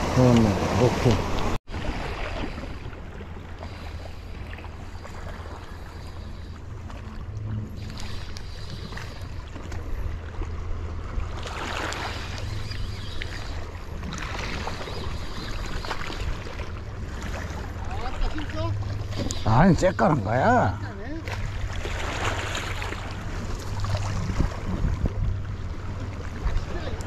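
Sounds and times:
small waves washing on shore: 0.0 - 27.0
wind rumble on microphone: 21.9 - 27.0.

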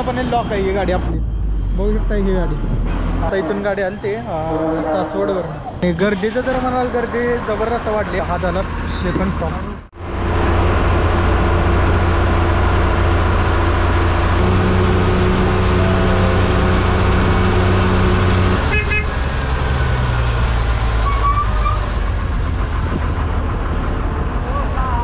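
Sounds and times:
bus engine drone: 5.4 - 25.0
bus horn toot: 14.4 - 19.2.

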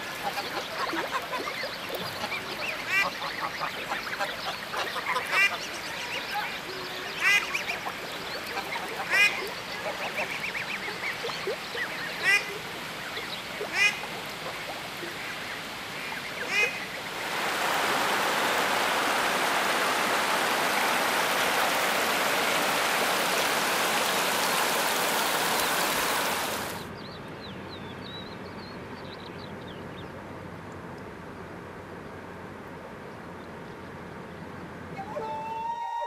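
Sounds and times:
water channel flowing: 0.0 - 27.0
loud steady rushing noise: 17.1 - 26.9.

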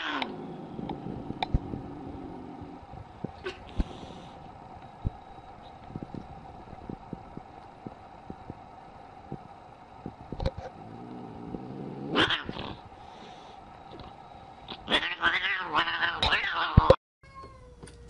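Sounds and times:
steady background hum: 0.0 - 16.9
loud cat cry: 14.9 - 17.8.

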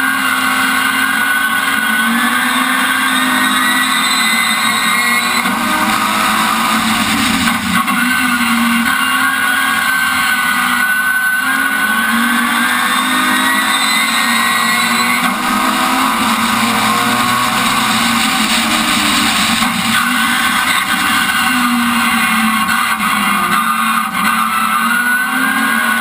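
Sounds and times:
racing car engine under load: 0.0 - 26.0
wind and road noise: 12.0 - 25.4.

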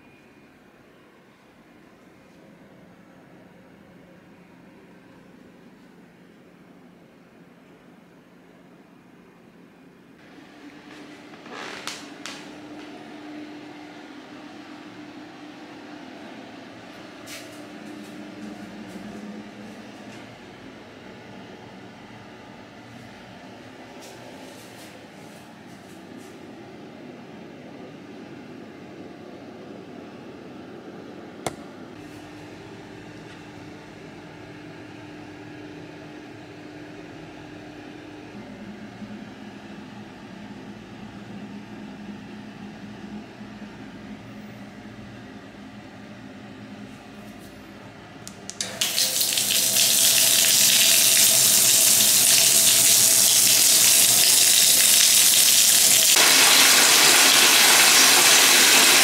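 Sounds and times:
water running into bathtub: 48.6 - 59.0.

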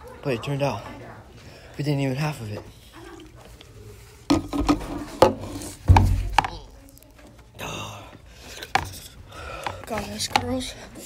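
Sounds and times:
thumps: 4.3 - 6.8.

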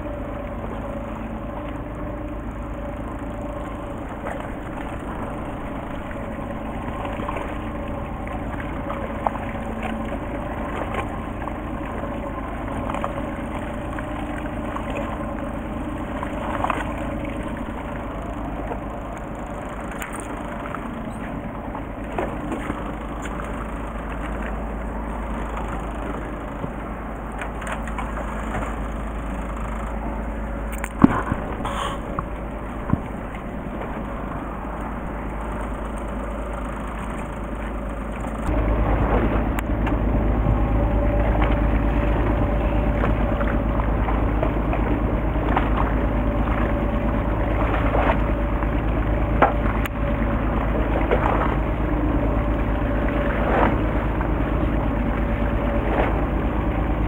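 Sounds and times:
boat engine running: 0.0 - 57.0
water noise: 0.0 - 57.0
wind: 0.0 - 57.0
sharp knocks: 31.0 - 32.3.

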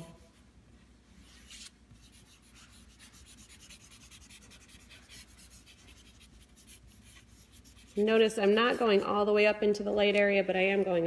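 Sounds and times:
charcoal scratching on paper: 1.2 - 9.1.

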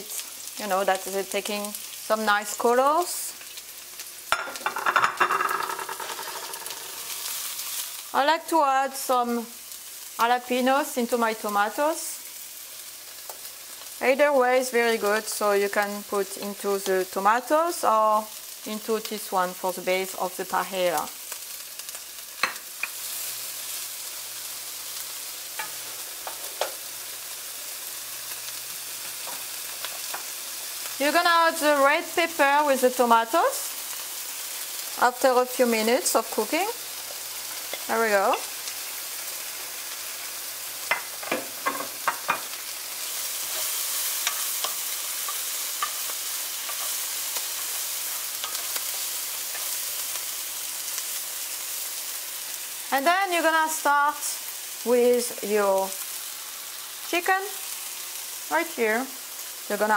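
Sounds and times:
vegetables sizzling in oil: 0.0 - 59.9
wooden spoon knocking pan: 4.4 - 6.7.

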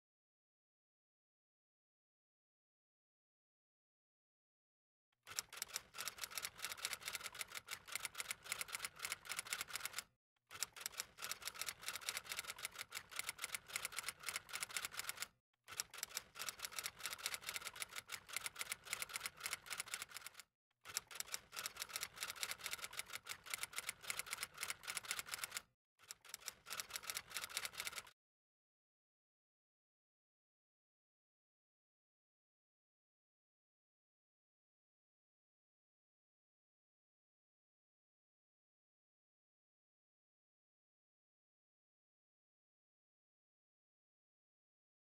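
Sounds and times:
typewriter keys typing: 5.3 - 10.0, 10.6 - 28.1.

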